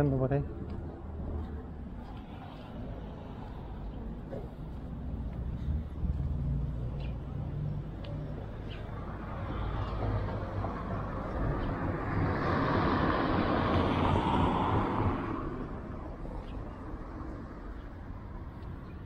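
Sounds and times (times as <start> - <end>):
traffic rumble: 0.0 - 19.0
car passing by: 4.5 - 17.6.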